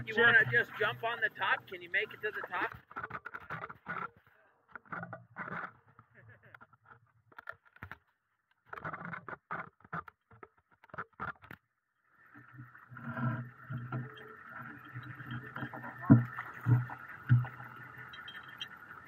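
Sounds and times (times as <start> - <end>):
water splashing and sloshing: 0.0 - 4.2, 8.6 - 19.0.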